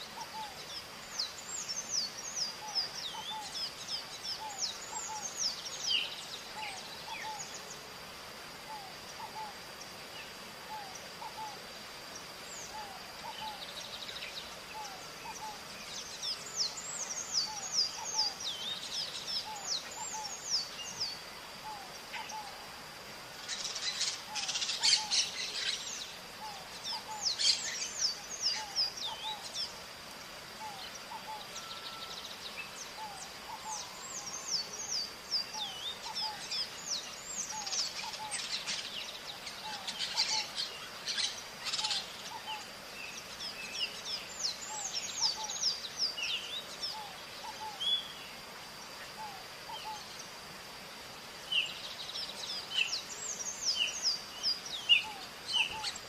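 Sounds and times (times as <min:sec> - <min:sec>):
faint steady high tone: 0:30.6 - 0:36.8.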